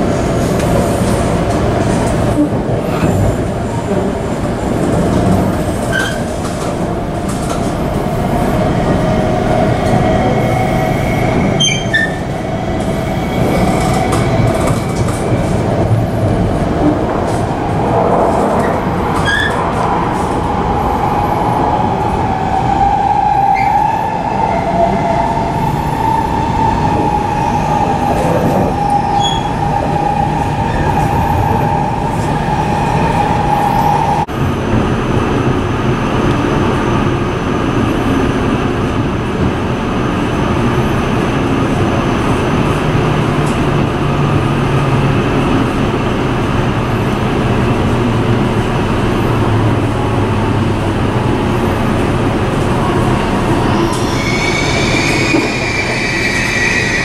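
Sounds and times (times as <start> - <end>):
train rumble: 0.0 - 57.0.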